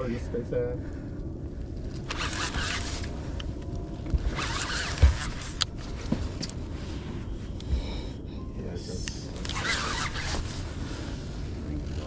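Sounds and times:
low rumble: 0.0 - 9.6
fishing reel whirring: 2.1 - 3.1.

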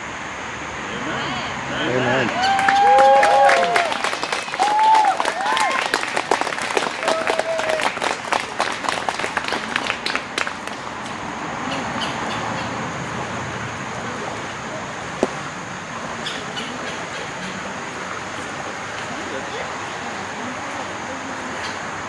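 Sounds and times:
outdoor hiss and rumble: 0.0 - 22.0
hand clapping: 2.2 - 11.2.

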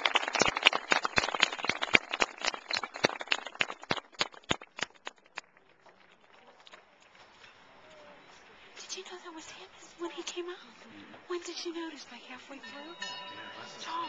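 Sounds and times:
audience applauding: 0.0 - 7.0.

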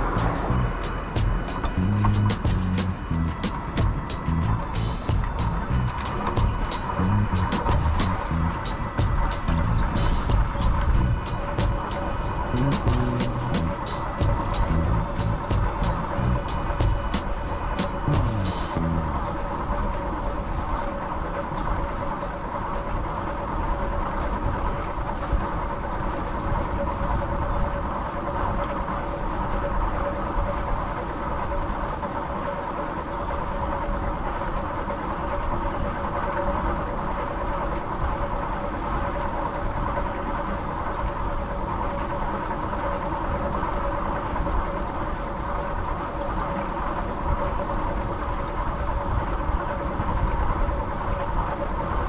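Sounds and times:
two-tone hum: 0.0 - 24.9
rolling vehicle noise: 0.0 - 52.0.

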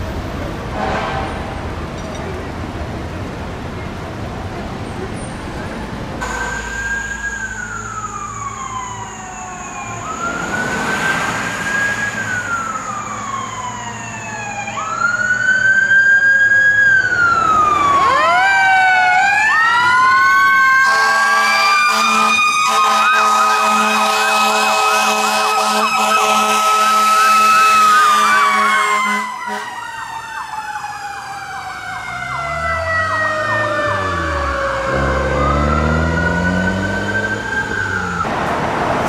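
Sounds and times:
fire truck horn blasts: 0.7 - 1.7, 6.2 - 7.1, 20.8 - 29.8
siren winding up and down: 6.2 - 15.8, 16.7 - 38.3
siren yelping rapidly: 16.9 - 38.2.

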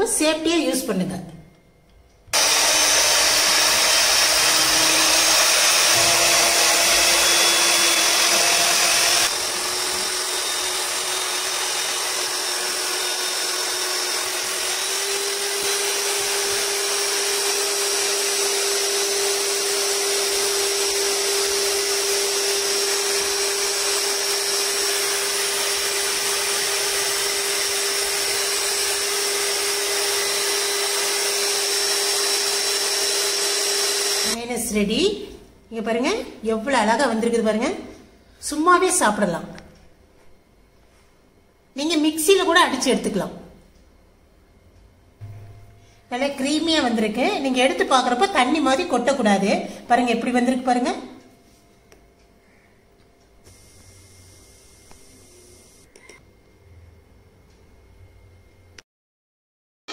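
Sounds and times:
electric hand mixer whisking: 2.4 - 34.4, 53.5 - 55.9.

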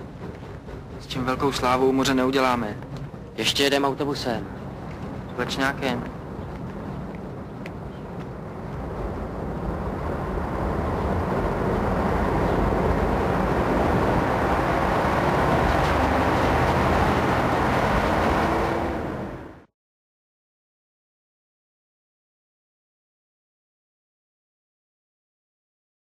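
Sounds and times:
diesel railcar engine working hard: 0.0 - 19.7.

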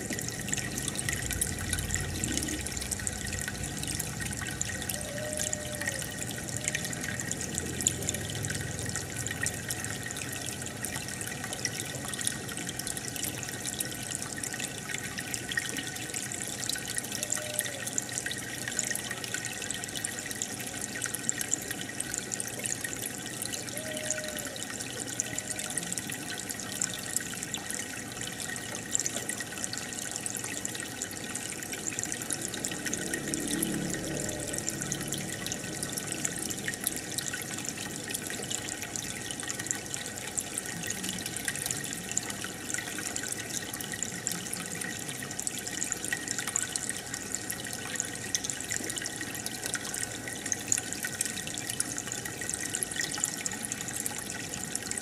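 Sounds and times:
aquarium water trickling: 0.0 - 55.0.

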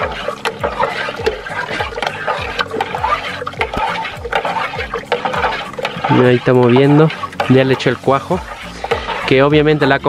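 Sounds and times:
milk sloshing in a metal pot: 0.0 - 10.0.

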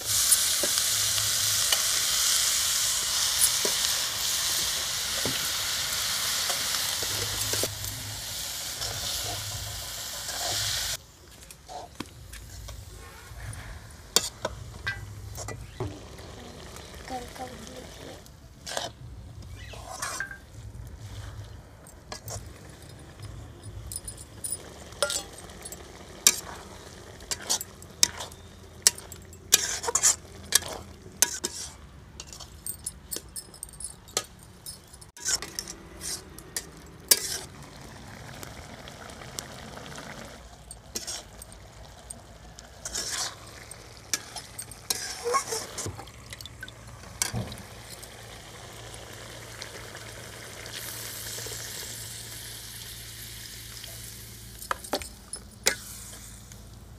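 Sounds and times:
frying sizzle: 0.0 - 11.0, 20.0 - 31.8, 35.2 - 56.9
metal spatula scraping a pan: 18.6 - 19.0, 19.6 - 21.2, 27.3 - 32.6, 35.2 - 37.5, 40.9 - 41.4, 42.8 - 45.9.

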